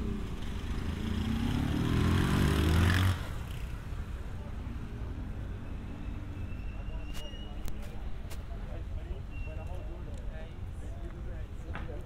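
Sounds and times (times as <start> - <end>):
vehicle engine accelerating: 0.0 - 3.8
city street noise: 0.0 - 12.0.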